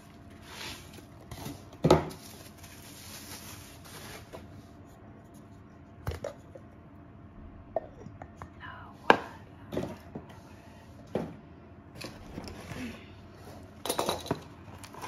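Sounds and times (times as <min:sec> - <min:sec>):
bubble wrap rustling: 0:00.0 - 0:04.9
glass jars knocking and clinking: 0:13.8 - 0:14.5.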